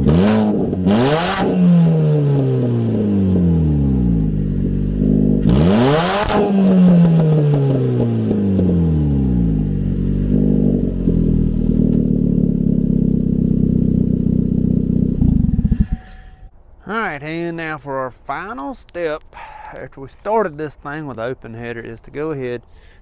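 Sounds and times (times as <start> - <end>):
car engine revving and idling: 0.0 - 16.2.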